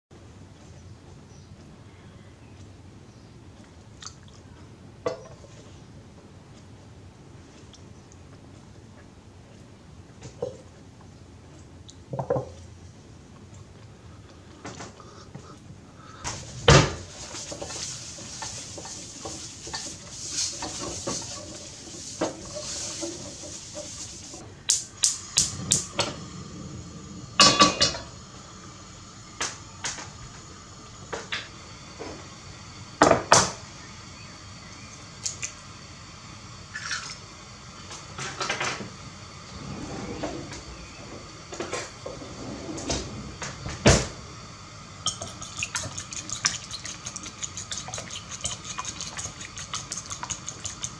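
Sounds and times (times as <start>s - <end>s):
steady hiss: 13.9s - 50.9s
kitchen utensils clinking: 27.4s - 28.1s.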